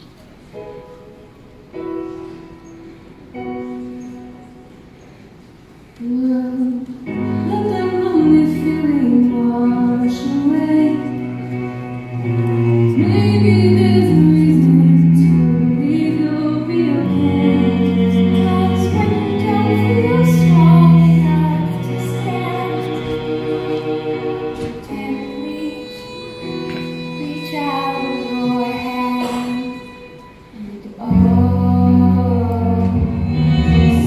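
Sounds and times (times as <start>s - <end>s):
ballad accompaniment through speakers: 6.0s - 34.0s
women singing: 13.0s - 26.2s, 30.6s - 34.0s.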